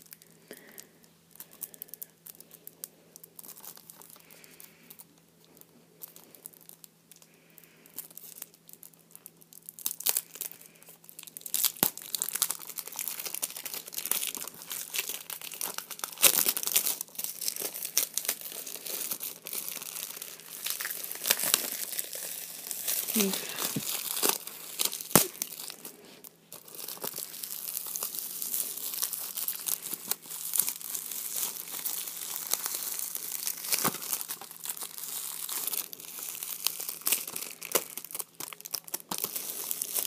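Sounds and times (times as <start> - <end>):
plastic wrapping crinkling and tearing: 0.0 - 40.0.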